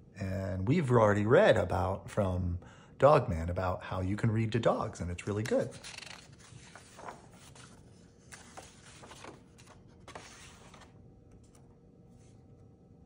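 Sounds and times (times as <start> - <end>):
paper rustling: 5.2 - 11.6.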